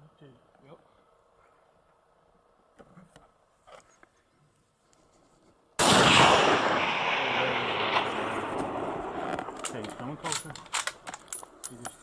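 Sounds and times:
rifle shot: 0:05.8 - 0:09.8.

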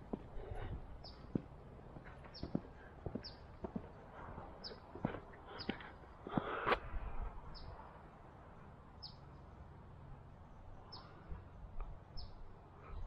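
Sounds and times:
bird chirping: 0:00.0 - 0:06.7, 0:07.5 - 0:07.8, 0:12.1 - 0:13.0.

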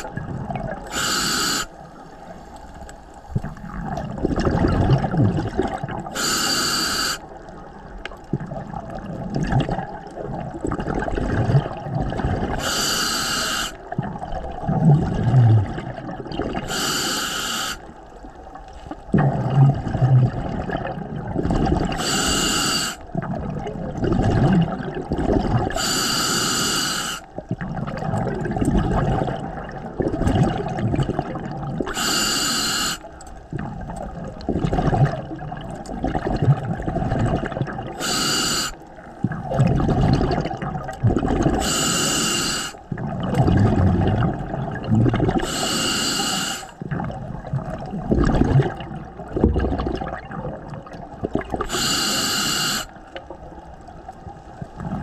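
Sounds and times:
underwater bubbling: 0:00.0 - 0:55.0
regulator hiss: 0:00.9 - 0:01.8, 0:06.2 - 0:07.2, 0:12.6 - 0:13.8, 0:16.7 - 0:17.9, 0:22.0 - 0:23.0, 0:25.8 - 0:27.3, 0:31.9 - 0:33.1, 0:38.0 - 0:38.8, 0:41.6 - 0:42.8, 0:45.4 - 0:46.8, 0:51.7 - 0:52.9.

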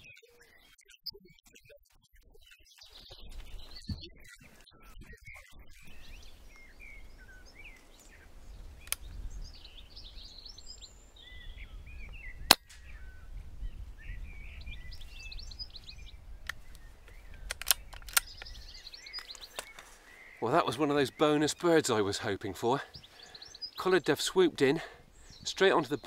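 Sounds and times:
birds chirping: 0:00.0 - 0:26.0
small click: 0:08.8 - 0:09.1, 0:16.4 - 0:18.5.

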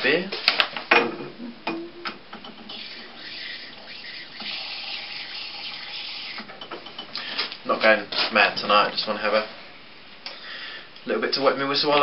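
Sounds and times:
beer pouring into glass: 0:02.7 - 0:06.5.

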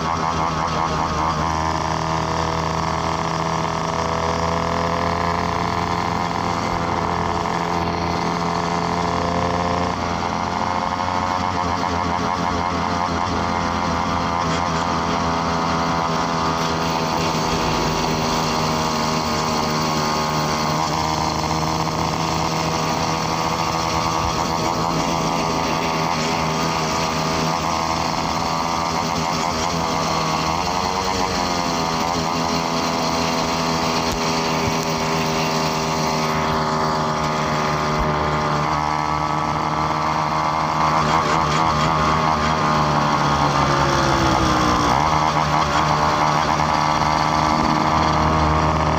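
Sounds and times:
motorbike engine running: 0:00.0 - 0:48.9.

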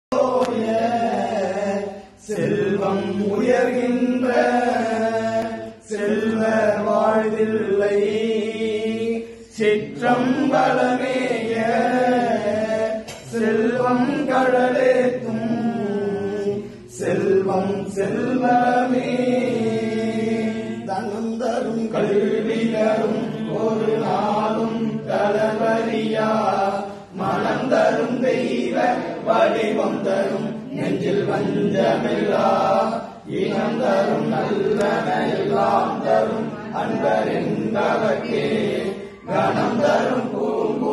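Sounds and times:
person chanting melodically: 0:00.1 - 0:40.9.

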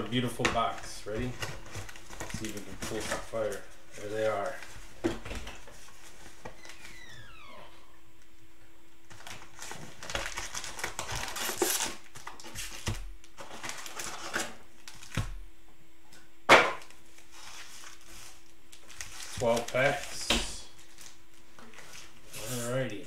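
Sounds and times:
cellophane packs crinkling: 0:00.2 - 0:04.8, 0:09.1 - 0:15.3, 0:17.1 - 0:22.9.

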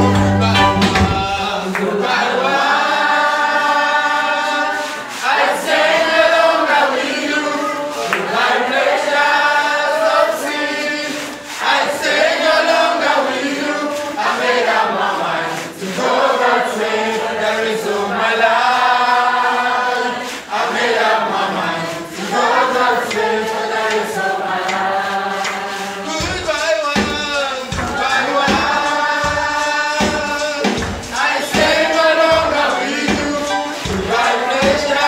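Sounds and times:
man singing into microphone: 0:00.0 - 0:02.5, 0:26.0 - 0:35.0
choir singing: 0:00.0 - 0:35.0.

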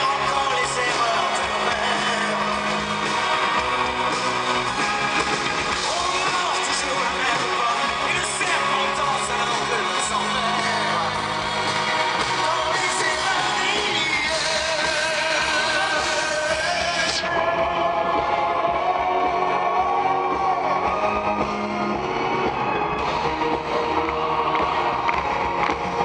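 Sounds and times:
man singing: 0:00.0 - 0:03.2, 0:05.8 - 0:21.2
live rock band playing: 0:00.0 - 0:26.0.

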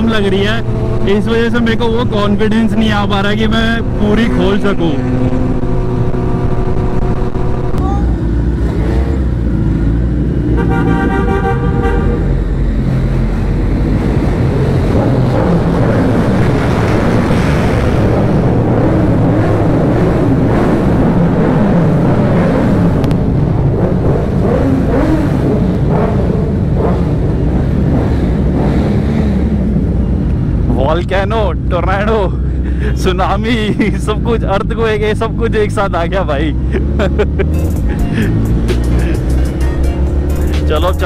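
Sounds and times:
motorcycles revving in underpass: 0:00.0 - 0:41.0
horn toot: 0:10.5 - 0:12.4.

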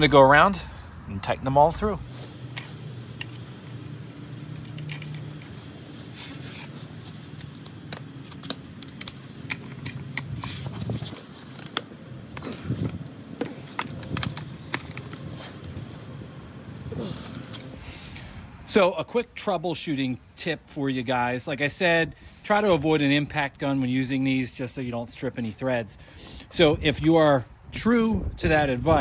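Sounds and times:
ratchet and torque wrench clicking: 0:02.5 - 0:05.5
small metal clinks: 0:02.5 - 0:05.5, 0:12.4 - 0:15.3.

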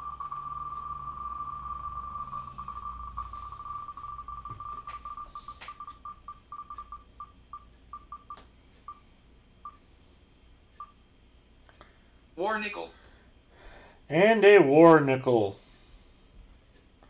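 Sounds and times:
electronic spinner ticks: 0:00.0 - 0:09.0.

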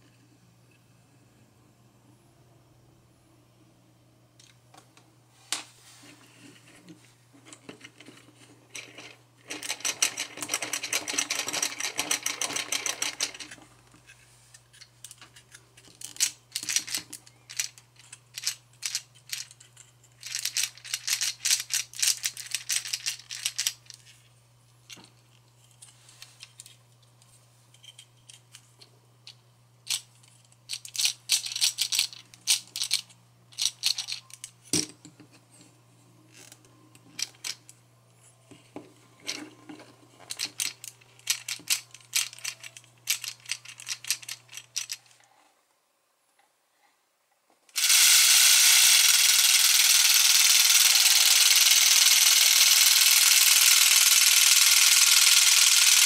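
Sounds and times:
plastic pistons and gears clattering: 0:06.8 - 0:13.8, 0:14.6 - 0:24.1, 0:29.9 - 0:35.1, 0:38.5 - 0:45.2, 0:47.8 - 0:56.0.

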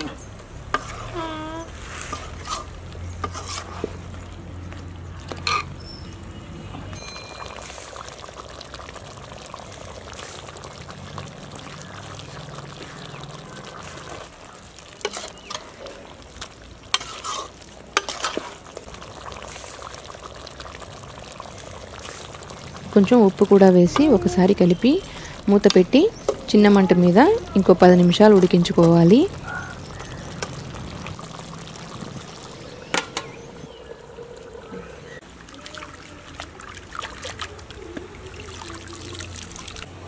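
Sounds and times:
curry simmering: 0:00.0 - 0:40.0
spoon scraping metal pot: 0:00.7 - 0:01.2, 0:02.0 - 0:04.0, 0:16.9 - 0:18.5.

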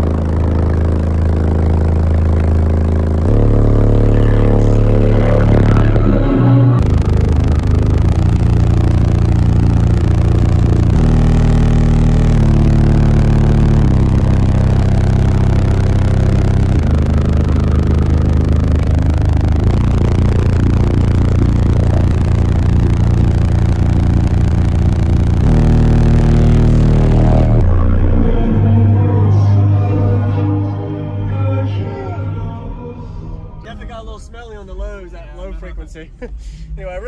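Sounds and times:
buzzing rattle: 0:00.0 - 0:28.3
loud bass-heavy music: 0:00.0 - 0:37.0.

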